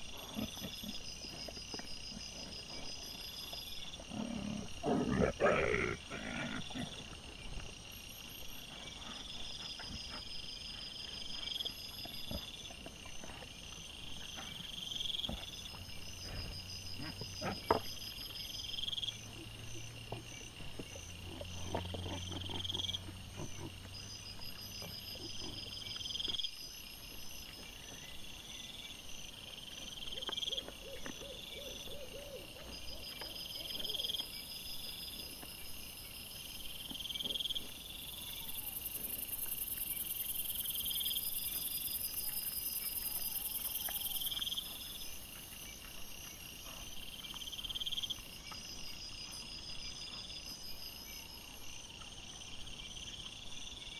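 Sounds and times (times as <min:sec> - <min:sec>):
insects trilling: 0:00.0 - 0:53.9
fast pulsed insect chirp: 0:14.1 - 0:53.9.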